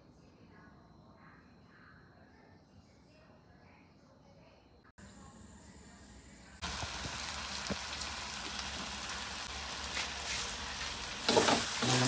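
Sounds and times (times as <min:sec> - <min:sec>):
meat sizzling in hot oil: 0:06.6 - 0:12.0.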